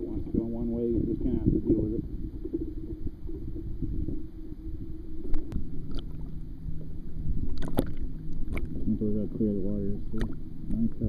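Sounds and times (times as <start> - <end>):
water sloshing: 5.2 - 8.9
taps and splashes: 7.5 - 8.7.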